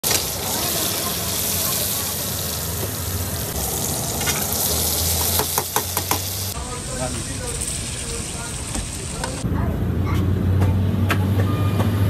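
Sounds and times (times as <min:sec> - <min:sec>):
hot oil sizzling: 0:00.0 - 0:09.4.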